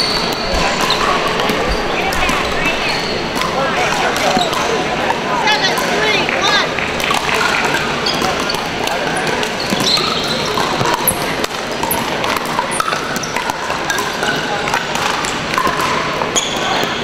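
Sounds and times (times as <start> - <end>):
sneakers squeaking on hardwood: 0.0 - 3.4, 8.0 - 11.2
din of play and chatter: 0.0 - 17.0
paddles hitting plastic ball: 5.7 - 16.9.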